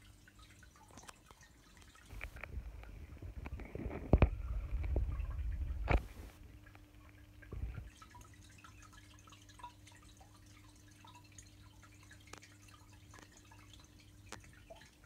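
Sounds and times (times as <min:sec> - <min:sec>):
water dripping and trickling: 0:00.0 - 0:15.0
low rumble: 0:02.4 - 0:06.4.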